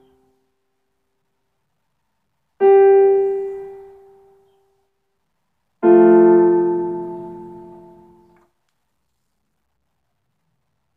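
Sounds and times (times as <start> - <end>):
piano note: 2.6 - 4.3, 5.8 - 8.4
piano chord ringing: 2.6 - 4.4, 5.8 - 8.4.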